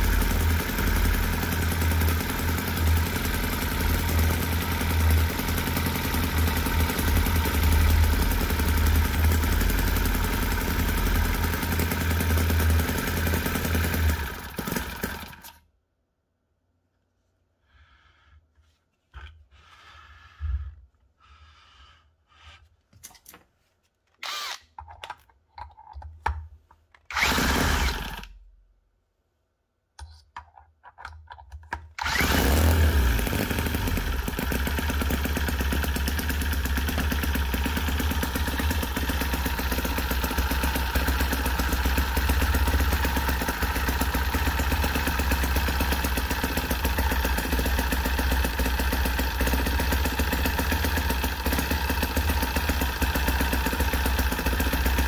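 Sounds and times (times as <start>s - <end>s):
model engine buzzing: 0.0s - 15.6s, 27.1s - 28.3s, 32.0s - 55.0s
drill whir: 0.1s - 15.6s, 24.2s - 24.8s, 27.1s - 28.4s, 32.0s - 55.0s
handling noises and clicks: 22.9s - 27.1s.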